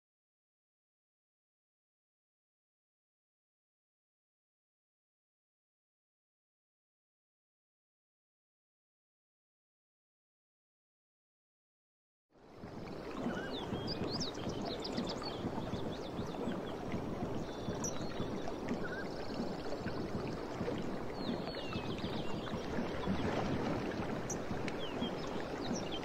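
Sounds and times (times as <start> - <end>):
sea water lapping: 12.4 - 26.0
small birds chirping: 13.2 - 20.2, 24.2 - 26.0.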